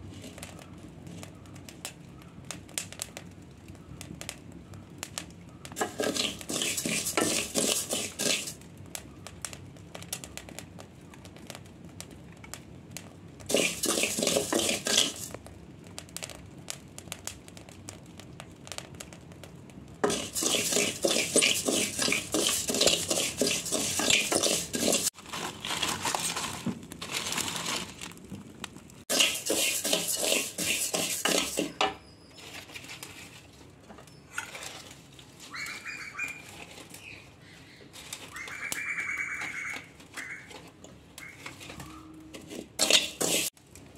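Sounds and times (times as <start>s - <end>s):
rice rustling in a pot: 0.0s - 1.6s, 5.8s - 8.6s, 13.4s - 15.4s, 20.0s - 39.0s, 39.9s - 43.9s
spatula scraping metal pot: 5.8s - 8.6s, 13.5s - 15.4s, 20.0s - 25.2s, 29.1s - 33.4s, 34.3s - 35.1s, 41.4s - 43.6s.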